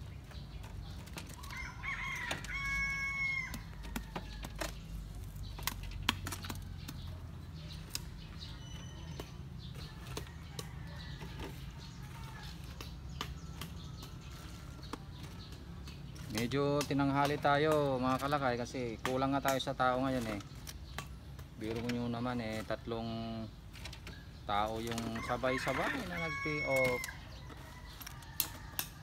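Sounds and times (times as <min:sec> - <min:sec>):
rooster crowing: 0:01.4 - 0:04.2, 0:25.2 - 0:29.0.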